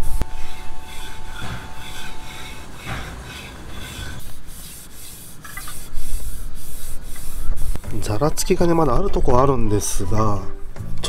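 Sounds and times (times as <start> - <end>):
rubbing on wooden cutting board: 0.0 - 8.7.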